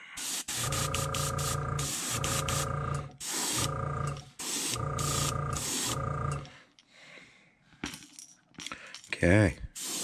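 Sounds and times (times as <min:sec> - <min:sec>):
airbrush spraying hiss: 0:00.0 - 0:03.7, 0:04.3 - 0:06.0, 0:09.7 - 0:10.0.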